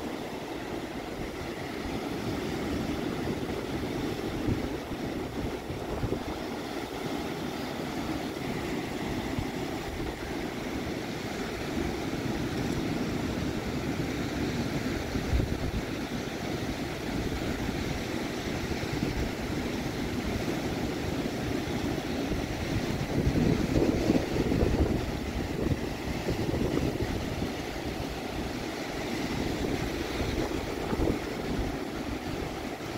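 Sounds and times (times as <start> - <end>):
low rumble of surf: 0.0 - 32.9
waves washing over rocks: 0.0 - 32.9.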